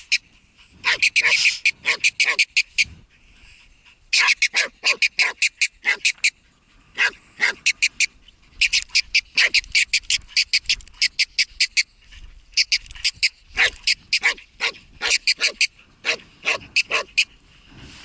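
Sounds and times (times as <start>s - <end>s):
dog barking sharply: 0.8s - 2.4s, 4.2s - 6.1s, 7.0s - 7.6s, 13.6s - 17.1s.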